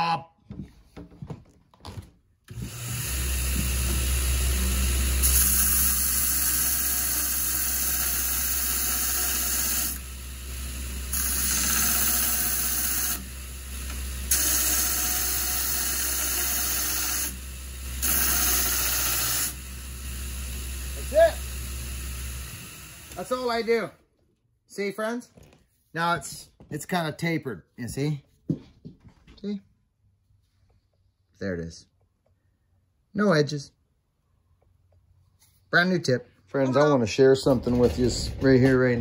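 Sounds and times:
belt grinder grinding steel: 0:02.5 - 0:23.7.

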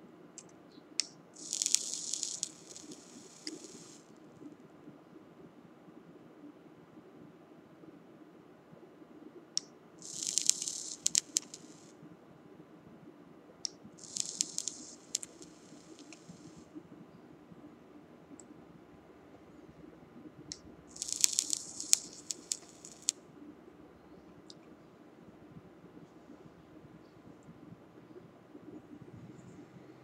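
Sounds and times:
sharp click: 0:00.4 - 0:04.0, 0:09.6 - 0:11.9, 0:13.7 - 0:16.5, 0:20.5 - 0:23.2
e-liquid sizzling and crackling: 0:01.4 - 0:04.1, 0:10.0 - 0:11.9, 0:14.0 - 0:16.7, 0:20.9 - 0:23.2.

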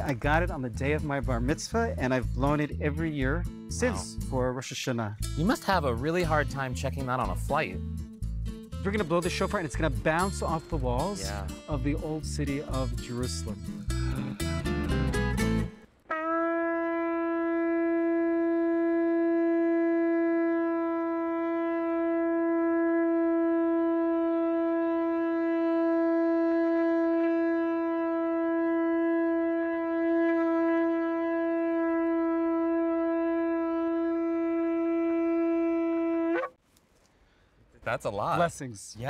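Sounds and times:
shofar horn blast: 0:16.1 - 0:36.6.

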